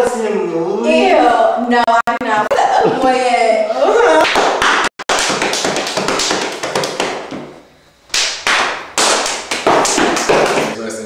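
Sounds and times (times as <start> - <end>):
rapid taps: 4.2 - 10.8.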